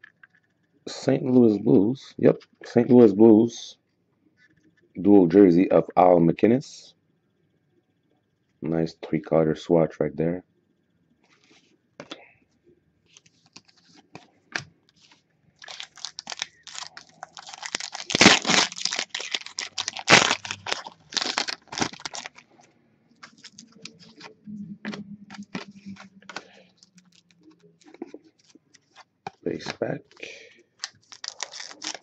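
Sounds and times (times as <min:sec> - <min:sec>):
plastic wrapper crackling and tearing: 0:15.0 - 0:22.6, 0:23.2 - 0:24.3, 0:25.3 - 0:32.0.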